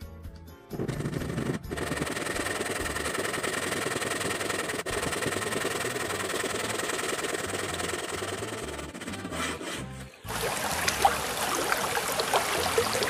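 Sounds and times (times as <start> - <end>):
waterfall rushing and splashing: 10.3 - 13.0.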